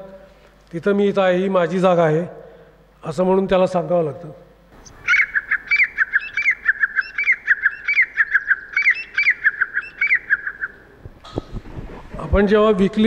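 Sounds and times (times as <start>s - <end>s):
bird call over loudspeaker: 4.8s - 10.9s.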